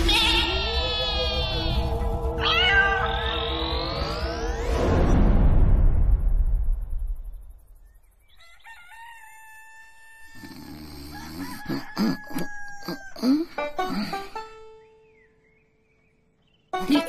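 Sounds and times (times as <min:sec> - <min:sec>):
rooster crowing: 0:08.3 - 0:13.3.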